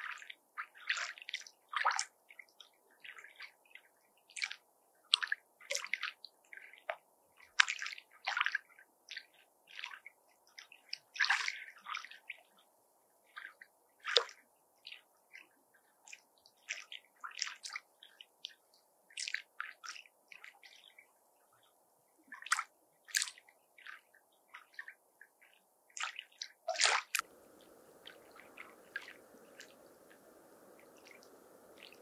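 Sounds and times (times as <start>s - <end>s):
lake waves lapping at shore: 26.0s - 32.0s.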